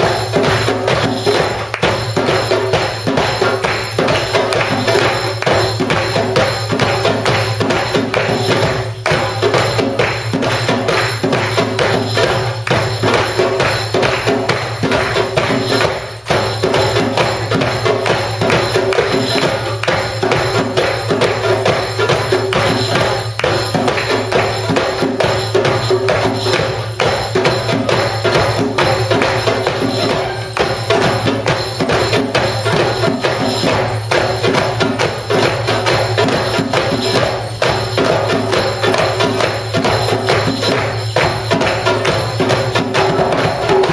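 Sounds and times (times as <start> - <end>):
frame drum jingles: 0.0 - 43.9
hand drums playing fast rhythm: 0.0 - 43.9.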